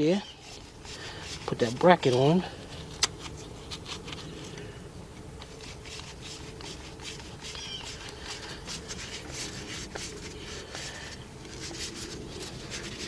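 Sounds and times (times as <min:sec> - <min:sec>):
steady low hum: 0:00.0 - 0:13.0
short high squeak: 0:07.5 - 0:07.9.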